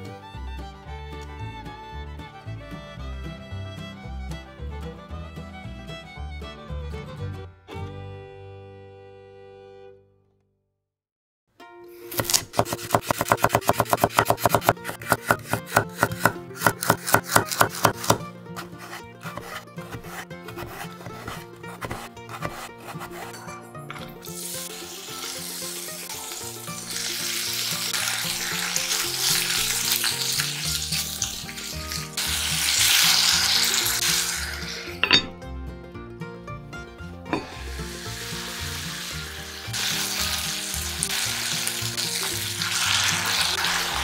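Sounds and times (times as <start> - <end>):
knife chopping on cutting board: 12.1 - 24.2
vegetables sizzling in pot: 24.2 - 35.1, 37.5 - 44.0
heavy lid clanking: 34.9 - 35.4.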